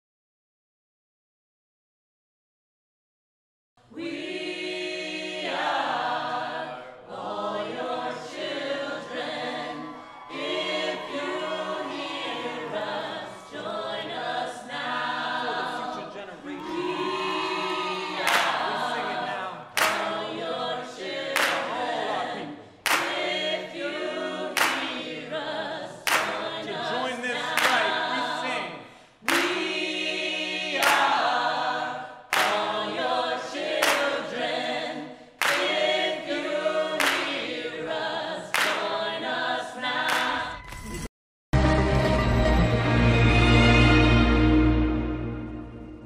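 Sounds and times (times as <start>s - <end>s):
group singing in chorus: 3.8s - 40.6s, 42.3s - 46.0s
sharp clapped beat: 18.2s - 18.8s, 19.7s - 20.4s, 21.3s - 22.0s, 22.8s - 23.5s, 24.5s - 25.0s, 26.1s - 26.6s, 27.4s - 28.3s, 29.2s - 29.8s, 30.8s - 31.3s, 32.3s - 32.8s, 33.7s - 34.3s, 35.4s - 36.0s, 37.0s - 37.5s, 38.5s - 39.0s.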